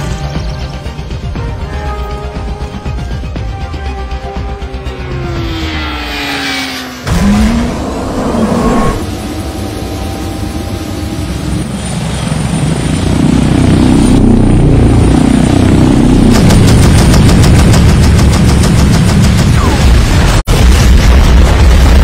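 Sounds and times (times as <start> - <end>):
rotor and engine noise: 2.4 - 19.6.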